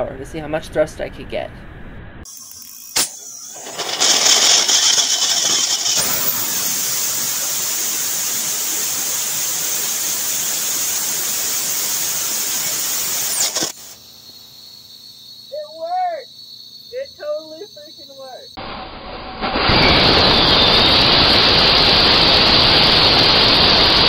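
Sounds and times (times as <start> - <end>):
rocket engine jet hiss: 2.9 - 14.0, 19.4 - 24.0.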